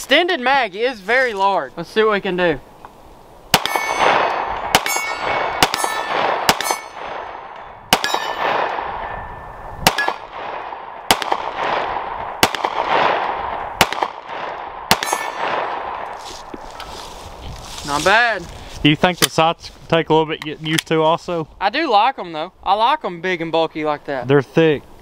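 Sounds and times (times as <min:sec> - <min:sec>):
pistol shots with echo: 0:03.5 - 0:16.1
metallic ring of steel targets: 0:03.6 - 0:10.2, 0:14.9 - 0:15.5.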